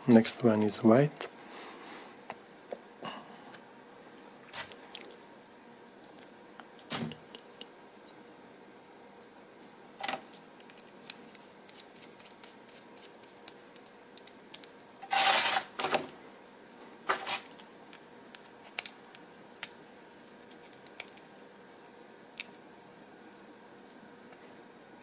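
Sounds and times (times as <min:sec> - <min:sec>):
hands handling plastic parts: 0:20.3 - 0:21.3.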